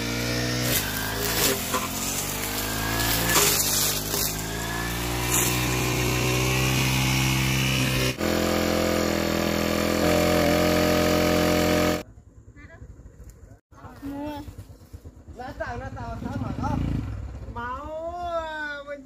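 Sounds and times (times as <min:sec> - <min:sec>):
brush cutter engine running: 0:00.0 - 0:12.0
cutting through grass: 0:00.0 - 0:12.0.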